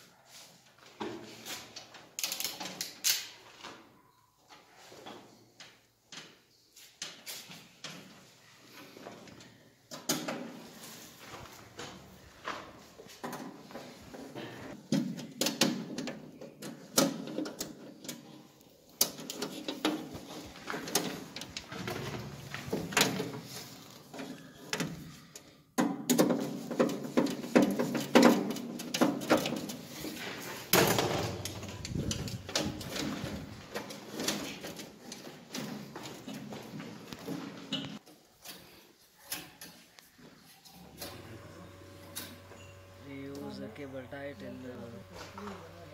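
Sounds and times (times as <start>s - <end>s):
tools and wires clattering: 0.8s - 3.9s, 9.0s - 41.2s.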